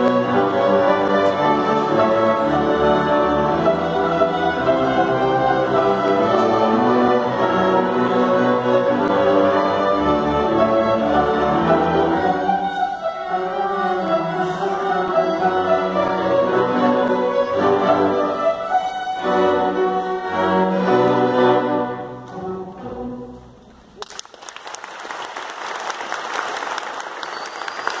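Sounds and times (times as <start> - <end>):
string orchestra with harp: 0.0 - 23.8
audience applause: 24.0 - 28.0.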